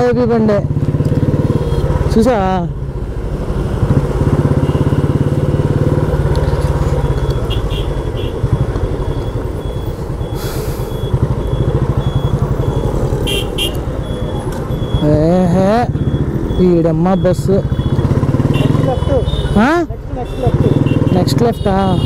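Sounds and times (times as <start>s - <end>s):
motorcycle engine running: 0.0s - 22.0s
traffic: 0.0s - 22.0s.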